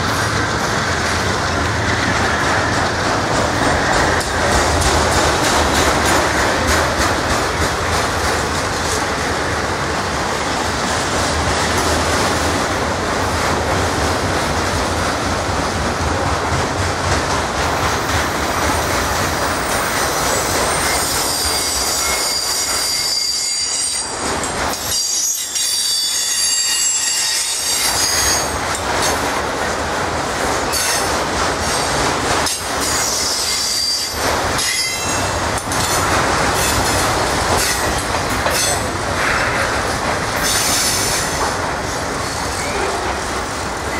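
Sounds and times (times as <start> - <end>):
freight cars rolling by: 0.0 - 20.8
high-pitched wheel squeal: 20.4 - 24.0, 24.9 - 28.5.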